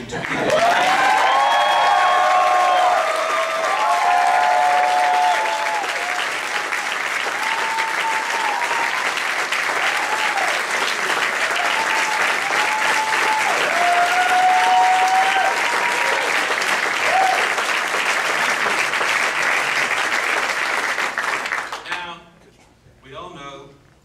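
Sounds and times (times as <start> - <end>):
crowd applauding: 0.0 - 22.1
cheers and whoops: 0.5 - 17.6.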